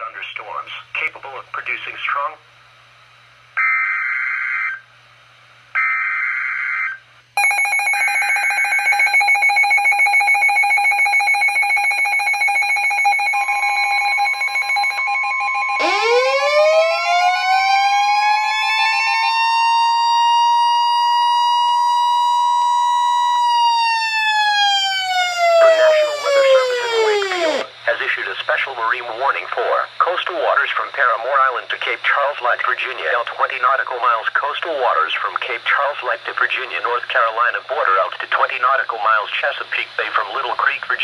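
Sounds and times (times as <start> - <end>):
siren winding up and down: 3.6 - 4.8, 5.8 - 27.7
rapidly pulsing alarm tone: 5.8 - 27.7
steady attention tone: 7.4 - 27.7.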